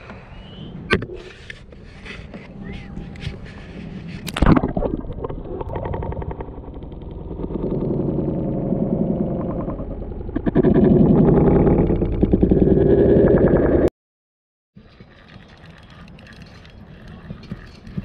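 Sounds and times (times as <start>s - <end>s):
muffled rumbling underwater noise: 0.0s - 13.9s.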